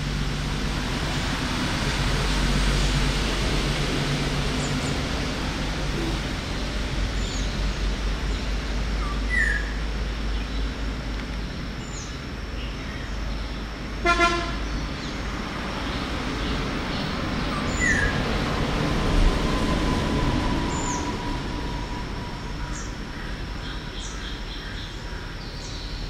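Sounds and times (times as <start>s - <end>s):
background traffic noise: 0.0s - 26.0s
vehicle horn toot: 14.0s - 14.6s.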